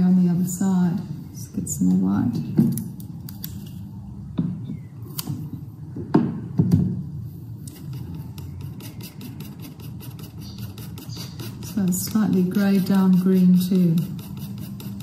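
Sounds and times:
brush scrubbing paint: 7.8 - 15.0.

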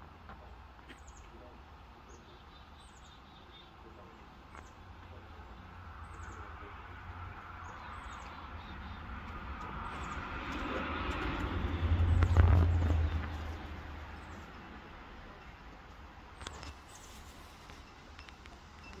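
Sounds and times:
small birds chirping: 0.4 - 19.0
vehicle passing by: 5.7 - 15.2.

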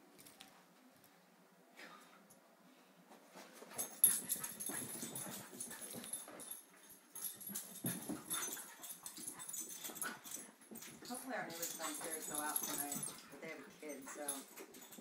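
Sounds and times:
paws scrabbling on floor: 3.2 - 15.0.

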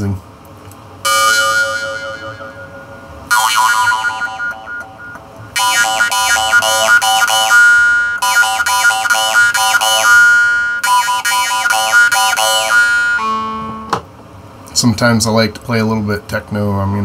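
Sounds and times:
jaw harp twanging: 1.1 - 14.0.

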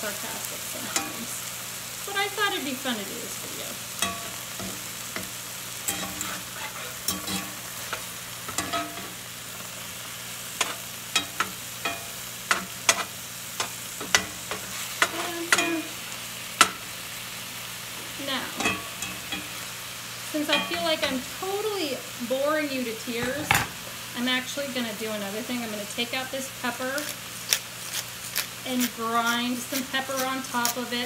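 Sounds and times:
food sizzling in a skillet: 0.0 - 31.0
spatula scraping a skillet: 4.0 - 9.8, 10.6 - 15.9, 27.0 - 31.0.

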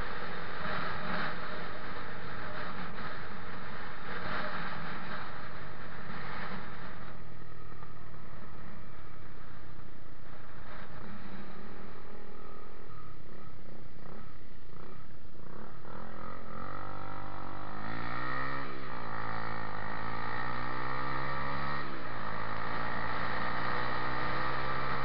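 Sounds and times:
motorcycle engine running: 0.0 - 25.0.

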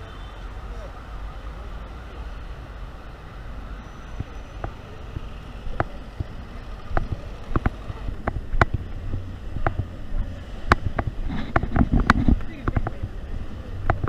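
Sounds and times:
traffic rumble: 0.0 - 14.0
wind: 0.0 - 14.0
sharp clicks and knocks: 4.2 - 10.0, 10.6 - 13.2, 13.8 - 14.0.

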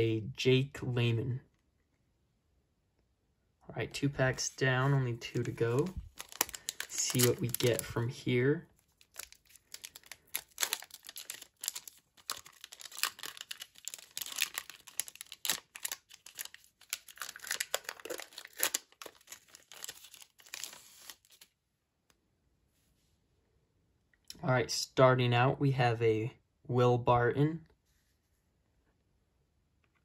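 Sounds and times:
foil wrapper tearing and crinkling: 5.7 - 8.0, 8.8 - 21.5.

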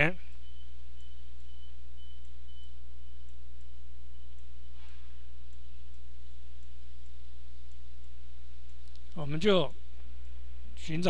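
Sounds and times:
low electrical hum: 0.0 - 11.0
faint light ticks: 3.2 - 9.2.

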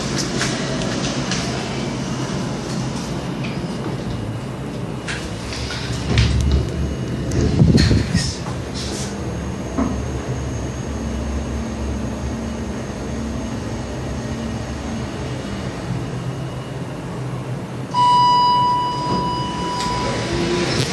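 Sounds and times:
elevator hum and whine: 0.0 - 20.9
elevator arrival chime: 17.9 - 20.7.

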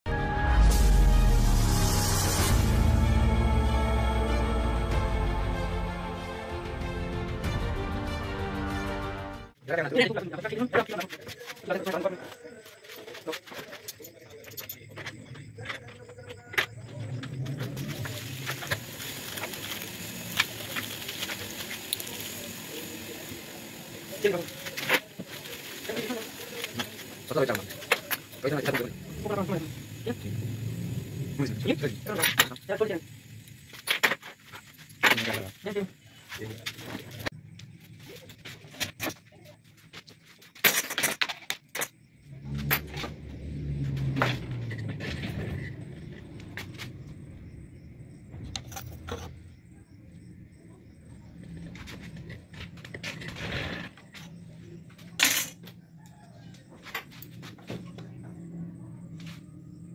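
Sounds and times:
low hum: 0.1 - 7.4
low rumble: 0.4 - 6.8
background hiss: 17.9 - 37.3.

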